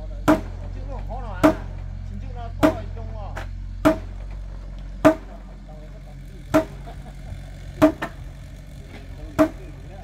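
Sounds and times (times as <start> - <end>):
low engine hum: 0.0 - 10.0
hammer striking timber: 0.2 - 0.7, 1.4 - 1.9, 2.6 - 4.4, 5.0 - 5.4, 6.5 - 6.9, 7.8 - 8.2, 9.3 - 9.8.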